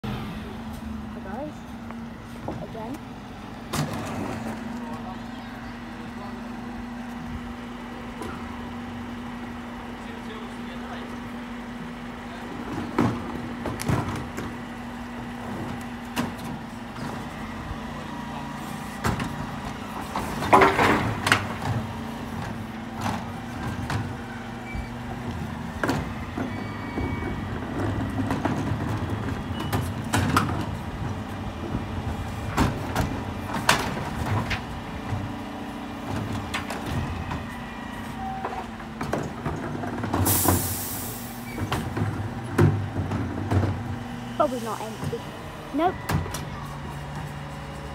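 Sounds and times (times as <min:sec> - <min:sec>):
truck engine hum: 0:00.0 - 0:47.9
air hissing: 0:40.3 - 0:41.5.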